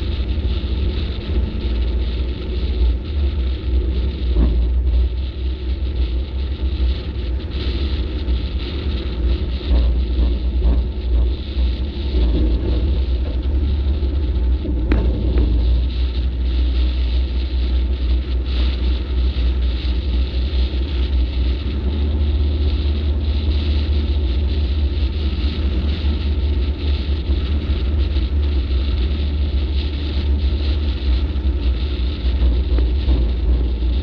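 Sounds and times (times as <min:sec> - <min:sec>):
road noise: 0:00.0 - 0:34.0
truck engine rumble: 0:00.0 - 0:34.0
wind buffeting microphone: 0:00.0 - 0:34.0.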